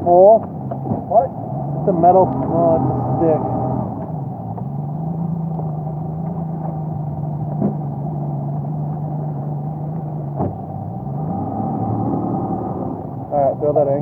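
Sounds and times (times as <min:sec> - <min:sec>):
outboard motor running: 0:00.0 - 0:14.0.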